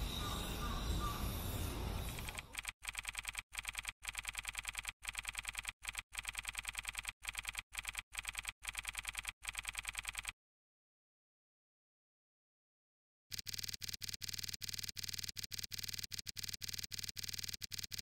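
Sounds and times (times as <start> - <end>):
rapid typing key clicks: 2.2 - 10.3, 13.3 - 18.0.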